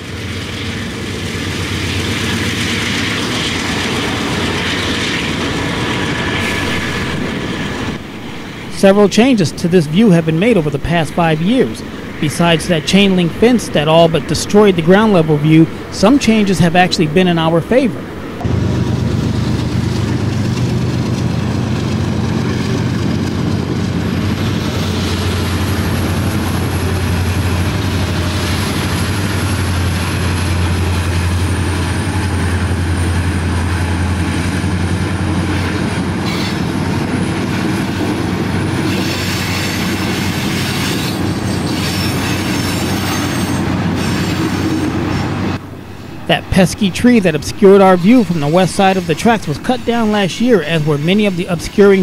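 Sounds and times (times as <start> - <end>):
diesel locomotive engines humming: 0.0 - 52.0
freight cars rattling and clacking: 0.0 - 52.0
high wheel squeal: 35.5 - 37.2, 38.8 - 52.0.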